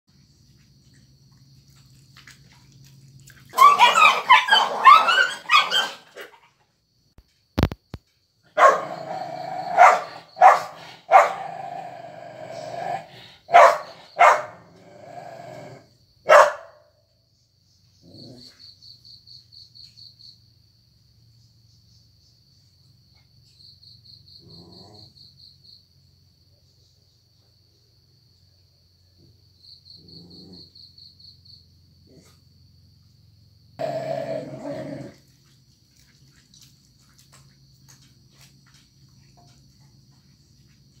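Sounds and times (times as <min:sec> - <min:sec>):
insect chirping trills: 0:00.1 - 0:41.0
dog barking sharply: 0:03.6 - 0:06.0, 0:08.6 - 0:08.9, 0:09.8 - 0:11.4, 0:13.5 - 0:14.6, 0:16.3 - 0:16.8
dog growling: 0:08.6 - 0:15.9, 0:18.0 - 0:18.6, 0:24.4 - 0:25.2, 0:30.0 - 0:30.8, 0:32.0 - 0:32.5, 0:33.8 - 0:35.3.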